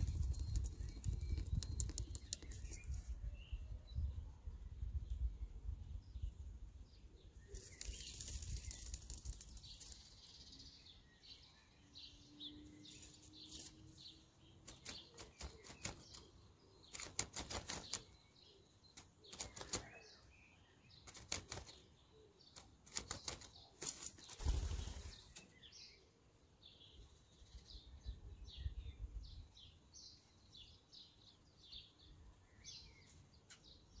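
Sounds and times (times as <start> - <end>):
twigs rustling: 7.5 - 10.2
bird wings flapping: 7.6 - 10.1, 14.6 - 16.3, 16.9 - 18.1, 19.2 - 20.0, 21.0 - 21.9, 22.6 - 25.4.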